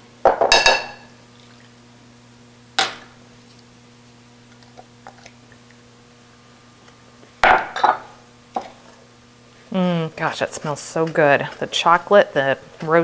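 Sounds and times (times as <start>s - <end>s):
glass cup clinking against bowl: 0.3s - 1.1s.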